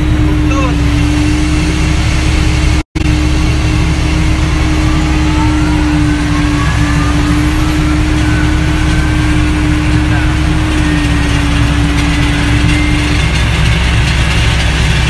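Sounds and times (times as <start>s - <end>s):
faint rising whine: 0.0s - 15.0s
tractor engine rumbling under load: 0.0s - 15.0s.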